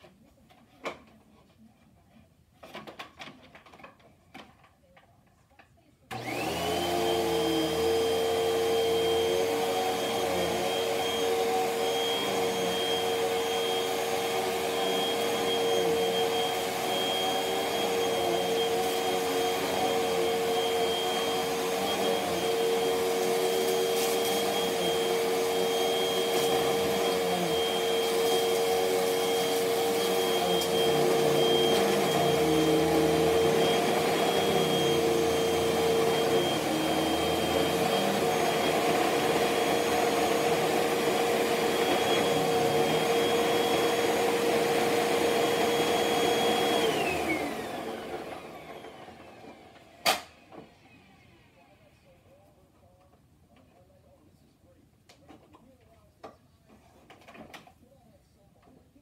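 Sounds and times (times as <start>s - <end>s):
vacuum cleaner motor whine: 6.1s - 51.9s.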